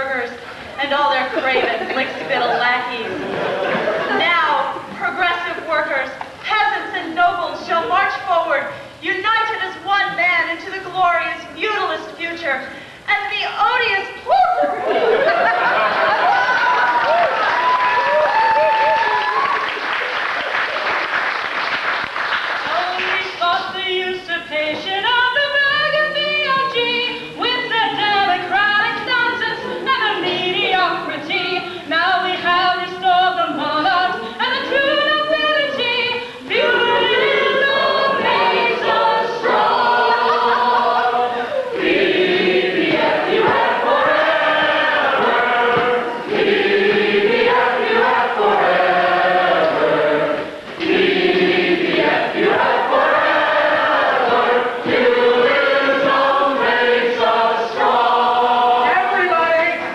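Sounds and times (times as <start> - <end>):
group singing unaccompanied: 23.0 - 59.9.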